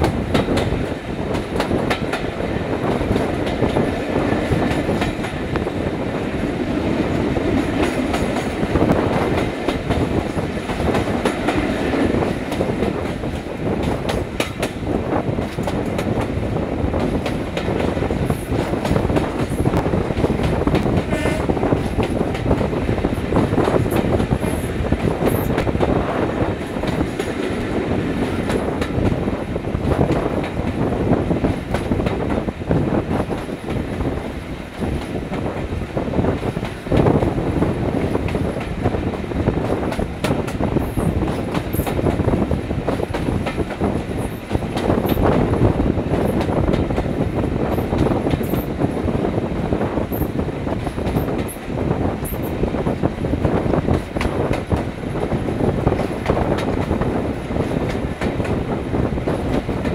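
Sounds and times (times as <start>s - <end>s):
train wheels clacking over rail joints: 0.0s - 49.2s, 50.0s - 59.9s
diesel locomotive engine under load: 0.0s - 59.9s.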